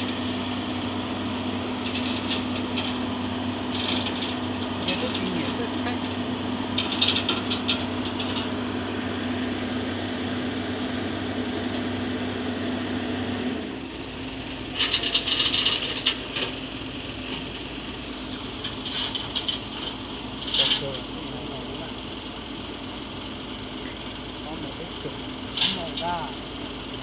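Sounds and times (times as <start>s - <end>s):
excavator diesel engine running: 0.0s - 27.0s
metallic rattling: 1.8s - 3.0s, 3.6s - 8.7s, 14.7s - 16.6s, 18.3s - 21.7s.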